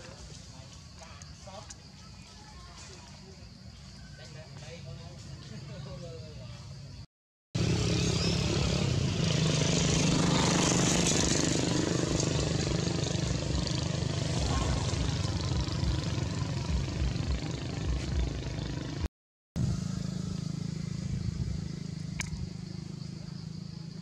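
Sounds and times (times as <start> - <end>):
engine drone: 7.6 - 24.0.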